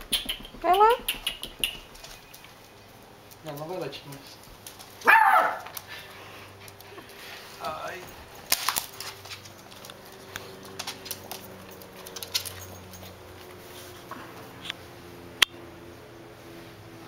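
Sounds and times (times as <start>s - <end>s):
dog yipping: 5.0s - 5.7s
dog claws clicking on wood: 8.4s - 13.2s.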